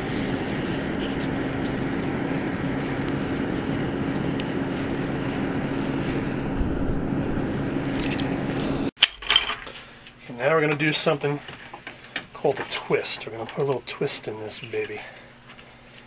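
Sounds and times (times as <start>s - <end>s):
faint fire crackles: 0.0s - 8.9s
wood fire rushing noise: 0.0s - 8.9s
constant low hum: 0.0s - 16.0s.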